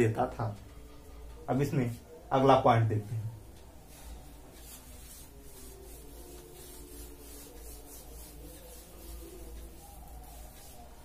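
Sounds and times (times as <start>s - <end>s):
whiteboard wiped by hand: 3.9s - 11.0s.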